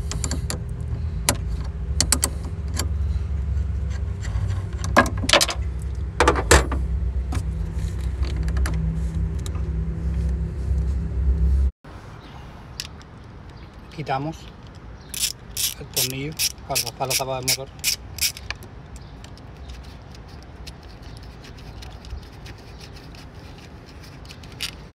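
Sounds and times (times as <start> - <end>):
steady low rumble: 0.0 - 15.9
wrench clicking on metal nut: 15.1 - 19.0.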